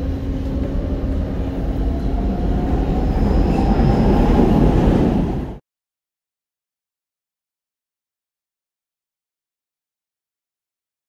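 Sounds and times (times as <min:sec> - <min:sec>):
metro train wheels rumbling: 0:00.0 - 0:05.6.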